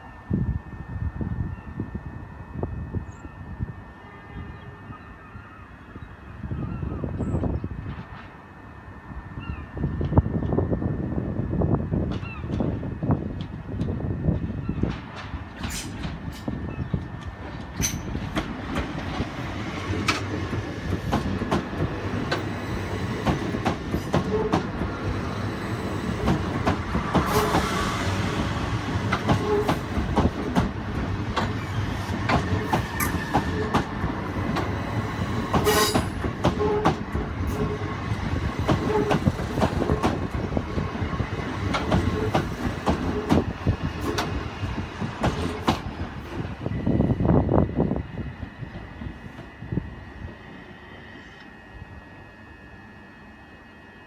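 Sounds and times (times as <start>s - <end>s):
train wheels clicking over rail joints: 13.3s - 25.5s, 26.1s - 27.9s, 28.9s - 37.8s, 38.5s - 40.9s, 41.6s - 46.0s.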